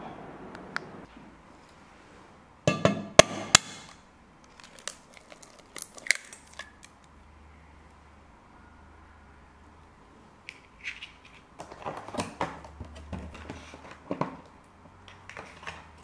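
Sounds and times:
eggshell clicks and crackles: 3.6 - 7.2.

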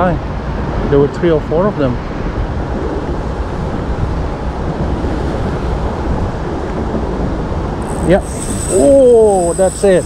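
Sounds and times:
wind buffeting the microphone: 0.0 - 10.0.

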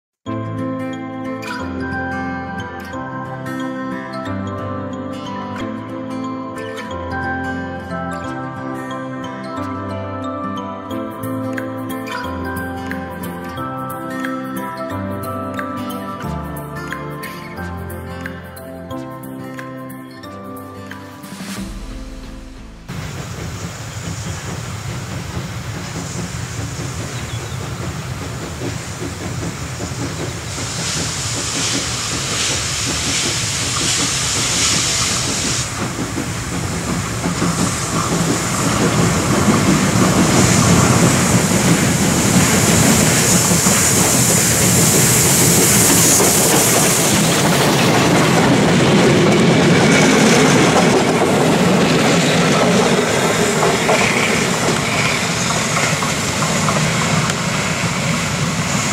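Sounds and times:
steam locomotive passing: 20.9 - 58.9
train carriages passing: 20.9 - 58.9.

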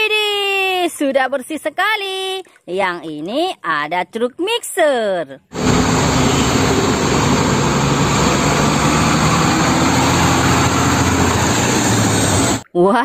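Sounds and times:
road traffic hiss: 5.5 - 12.6
truck diesel engine running: 5.5 - 12.6.

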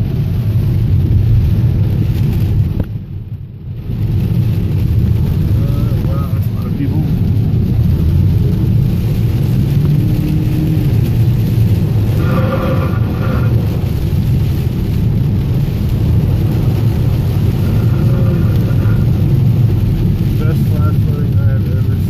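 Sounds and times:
car driving in rain: 0.0 - 22.0.

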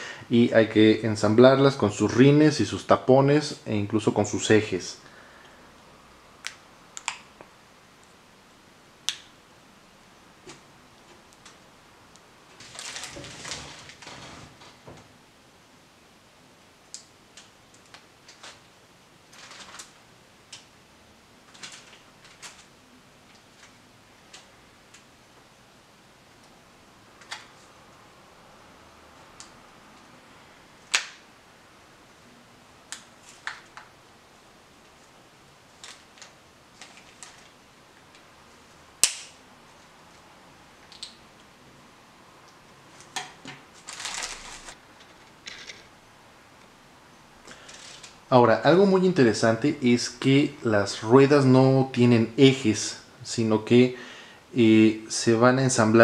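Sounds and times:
plastic bag crinkling: 12.5 - 14.3, 19.3 - 20.0, 43.7 - 44.8, 47.5 - 48.2.

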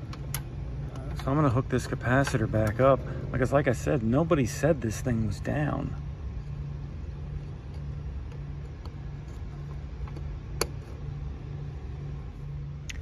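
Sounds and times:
low hum and rumble: 0.0 - 13.0
wire terminal click: 10.0 - 10.8.

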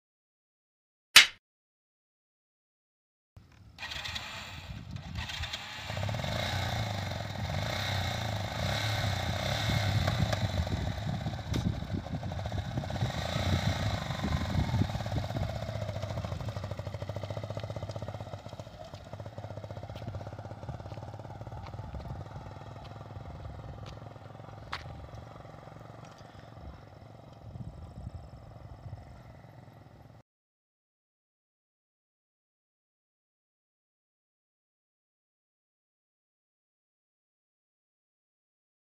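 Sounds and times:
motorcycle engine running: 3.8 - 30.2
tyres on gravel: 15.3 - 27.5.

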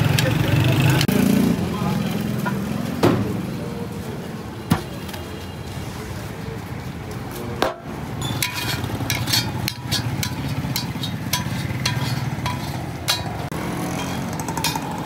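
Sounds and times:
metal spatula scraping a pan: 8.2 - 15.0.

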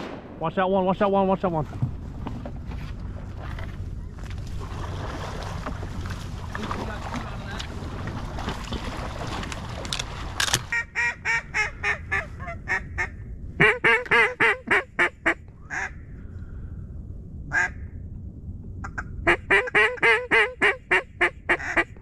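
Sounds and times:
wind noise on microphone: 0.0 - 22.0
duck call quacks: 10.7 - 15.9, 18.8 - 22.0.

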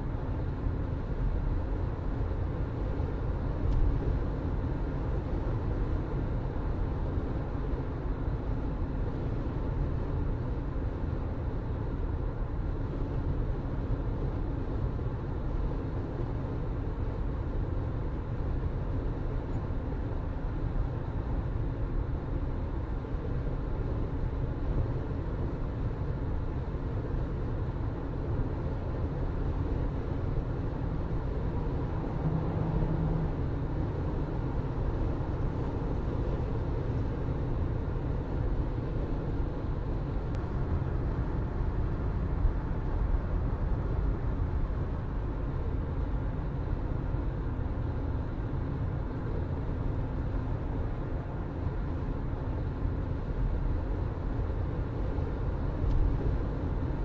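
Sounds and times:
tyres rumbling on road: 30.7 - 45.0.

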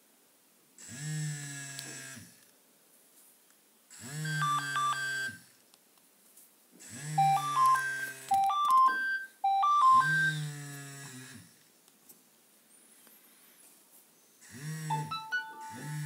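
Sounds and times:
phone alarm beeps: 4.2 - 5.4, 7.2 - 10.5, 14.9 - 16.0.

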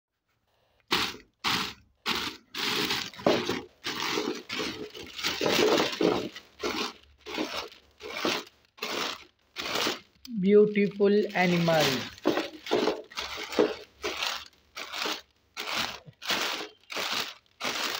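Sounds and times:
plastic bag crinkling: 0.9 - 17.9.

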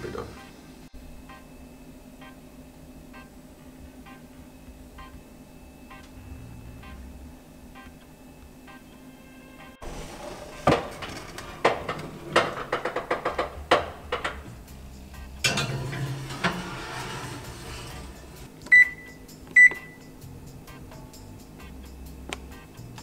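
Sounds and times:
short electronic beeps: 4.0 - 9.8, 18.7 - 20.1
metal clanking and scraping: 9.8 - 14.6, 15.2 - 18.5.

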